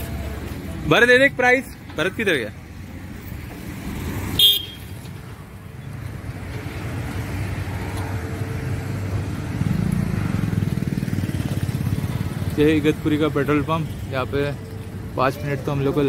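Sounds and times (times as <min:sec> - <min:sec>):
vehicle engine rumbling: 0:00.0 - 0:16.0
short horn toot: 0:04.4 - 0:04.9.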